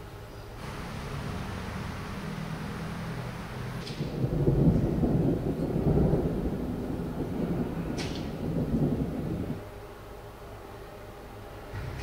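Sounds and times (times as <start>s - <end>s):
distant thunder rumbling: 0.6s - 9.6s.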